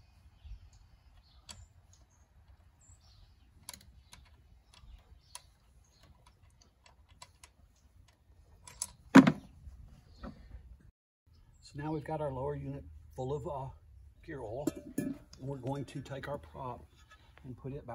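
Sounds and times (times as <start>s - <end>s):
faint clicks and ticks: 0.7s - 9.0s.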